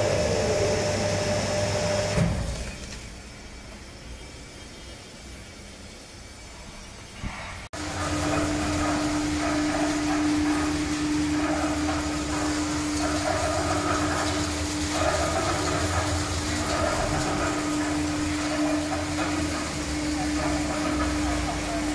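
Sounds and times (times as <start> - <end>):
electric motor hum: 0.0 - 2.3.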